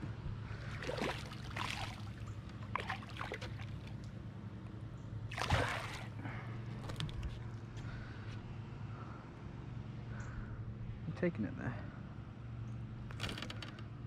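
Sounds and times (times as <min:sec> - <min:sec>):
fish splashing at water surface: 0:00.6 - 0:04.1, 0:05.3 - 0:06.2.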